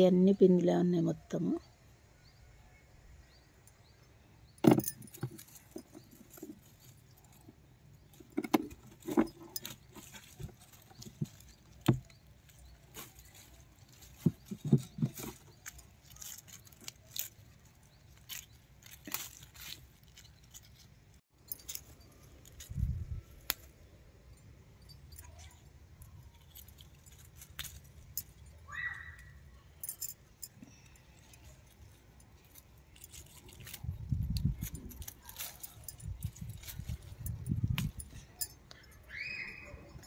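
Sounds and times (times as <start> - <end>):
rustling vines and dry leaves: 3.3 - 40.0
brief high squeak: 39.1 - 40.0.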